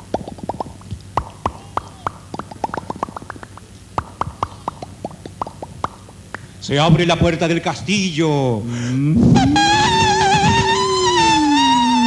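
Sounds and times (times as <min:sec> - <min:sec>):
mouth-made water drip plips: 0:00.0 - 0:06.1.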